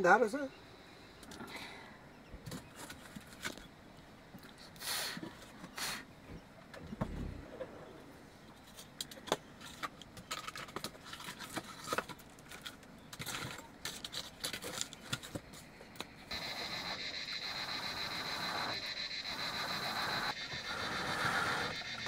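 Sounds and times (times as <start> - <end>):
steady high hiss: 16.0 - 22.0.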